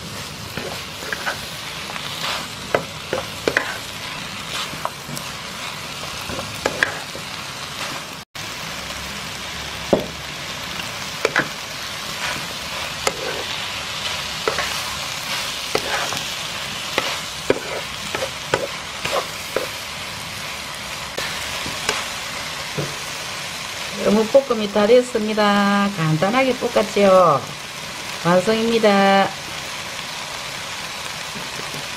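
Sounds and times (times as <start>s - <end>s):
food sizzling in a pan: 0.0s - 31.9s
wooden spatula scraping pan: 0.5s - 5.4s, 6.1s - 8.1s, 12.2s - 13.6s, 14.4s - 16.3s, 16.9s - 19.8s.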